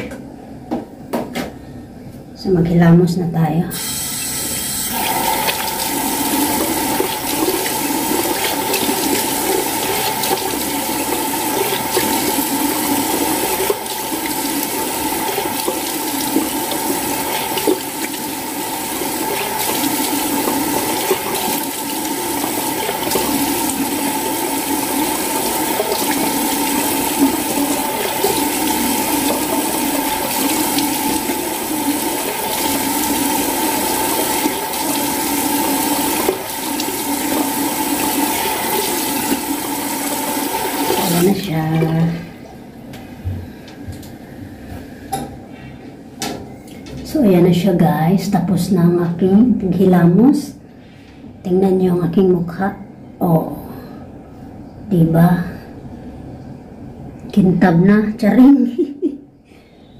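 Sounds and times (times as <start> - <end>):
face being washed: 3.7 - 42.0
water running: 3.7 - 42.7.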